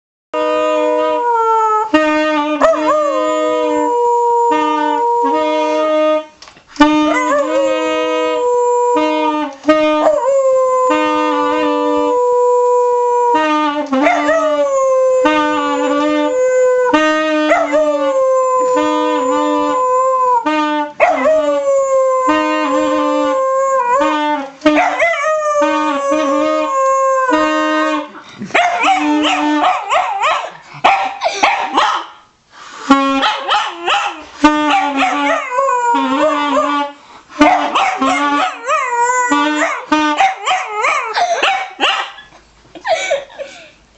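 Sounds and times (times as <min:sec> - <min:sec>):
dog howling: 0:02.6 - 0:05.5, 0:07.1 - 0:09.4, 0:10.0 - 0:24.2, 0:24.8 - 0:28.1, 0:33.7 - 0:41.8.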